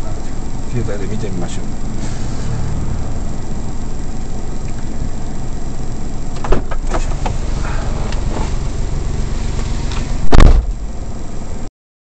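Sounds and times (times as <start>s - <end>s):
truck engine idling: 0.0s - 11.7s
car door shutting: 6.3s - 10.9s.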